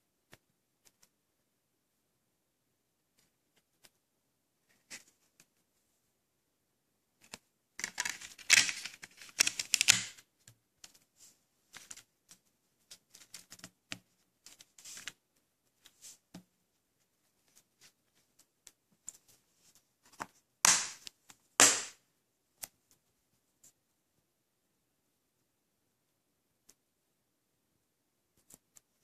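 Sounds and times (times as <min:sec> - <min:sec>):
plastic case clicks and rattles: 0:07.8 - 0:10.2.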